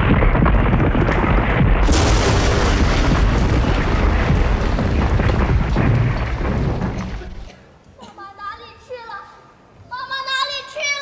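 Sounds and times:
deep earthquake rumble: 0.0 - 7.5.

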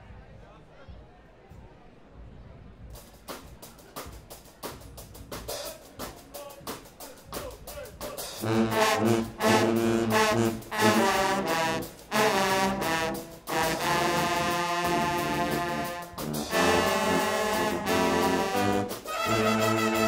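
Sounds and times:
drum beat: 3.0 - 20.0
brass section playing: 8.1 - 20.0.

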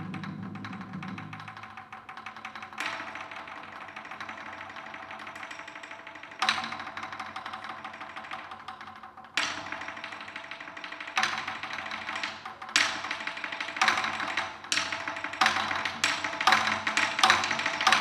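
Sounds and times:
drums beaten with sticks: 0.0 - 1.8.

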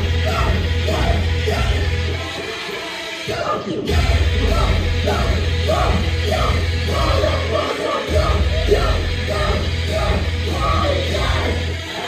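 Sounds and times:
live band with heavy bass: 3.8 - 12.0.

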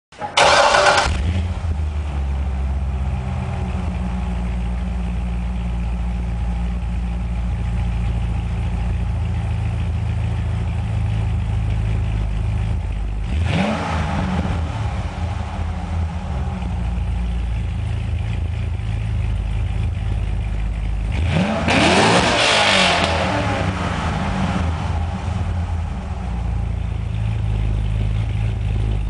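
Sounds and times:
car engine starting and idling: 0.1 - 29.0
engine revving: 0.3 - 1.8, 13.2 - 18.8, 21.0 - 29.0.

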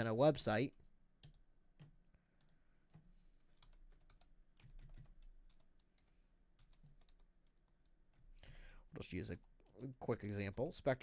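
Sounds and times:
typing on computer keyboard: 1.2 - 8.4.

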